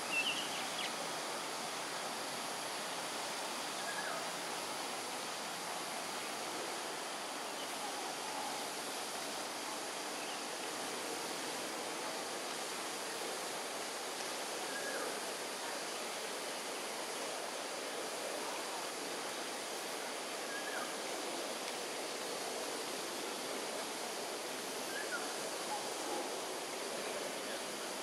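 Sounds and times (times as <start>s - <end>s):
outdoor background hiss: 0.0s - 28.0s.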